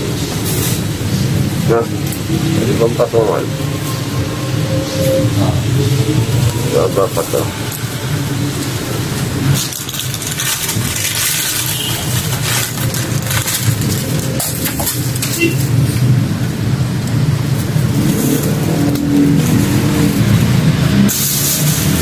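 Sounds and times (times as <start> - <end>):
dry debris crackling: 0.0 - 22.0
plastic bag rustling: 5.6 - 16.2, 17.5 - 22.0.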